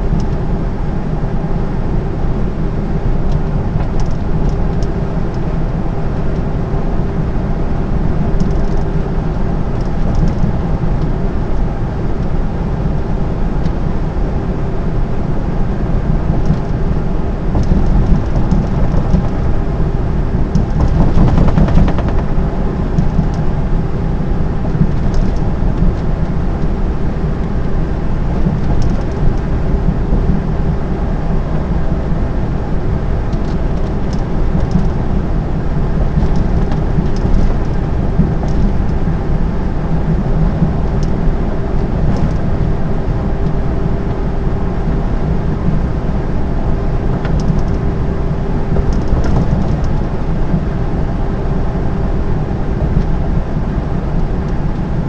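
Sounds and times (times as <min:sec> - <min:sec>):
diesel engine running: 0:00.0 - 0:55.0
steady hum: 0:00.0 - 0:55.0
faint ticks and rattles: 0:09.7 - 0:12.3, 0:17.5 - 0:19.6, 0:20.5 - 0:23.5, 0:28.3 - 0:29.5, 0:36.1 - 0:39.1
tyres rumbling: 0:17.2 - 0:30.7.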